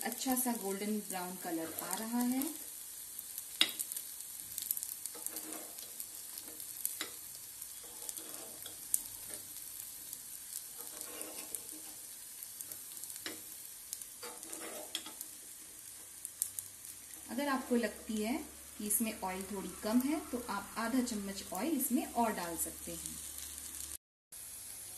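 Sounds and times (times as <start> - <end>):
food sizzling in oil: 0.0 - 24.9
metal spoon scraping pan: 1.4 - 2.2, 5.0 - 9.6, 10.5 - 13.5, 14.1 - 16.0.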